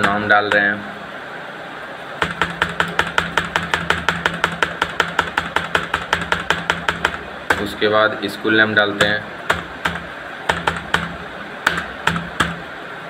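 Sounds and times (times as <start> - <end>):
laptop keyboard typing: 0.0 - 0.8, 2.2 - 7.9, 9.0 - 12.7.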